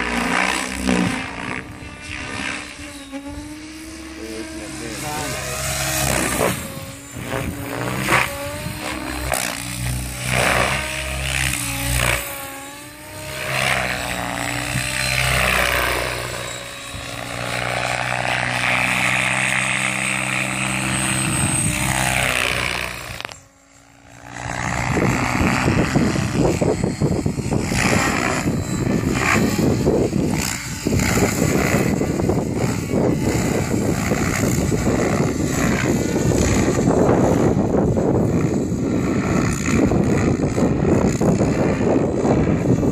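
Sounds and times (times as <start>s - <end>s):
model helicopter rotor whine: 0.0s - 42.9s.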